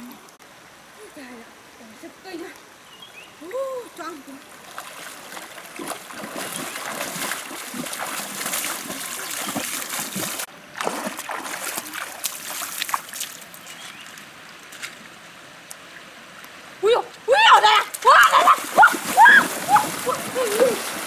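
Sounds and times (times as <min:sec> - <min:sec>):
person wading through river water: 0:04.4 - 0:16.4, 0:17.6 - 0:21.0.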